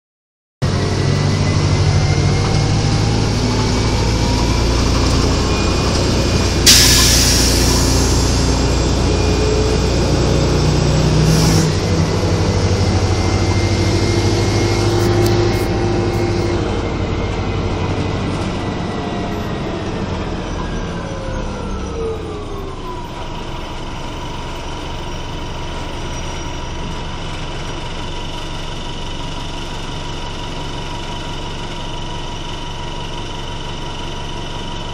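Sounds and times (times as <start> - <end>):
bus engine whining: 0.6 - 34.9
air brake hiss: 6.6 - 8.8, 11.2 - 11.7.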